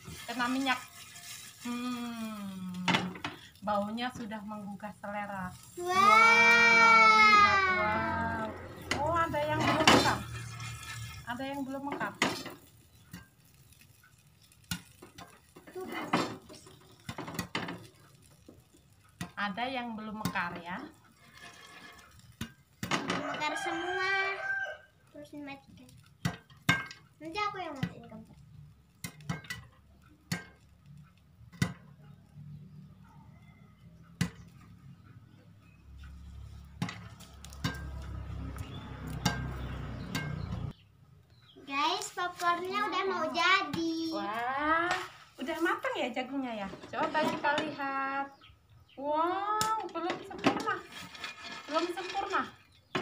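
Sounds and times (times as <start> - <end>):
popcorn popping: 0.0 - 23.6, 25.0 - 33.0, 34.1 - 35.0, 35.8 - 40.8, 49.3 - 53.0
sizzling in a pan: 0.0 - 33.0, 33.7 - 40.8, 41.5 - 48.5.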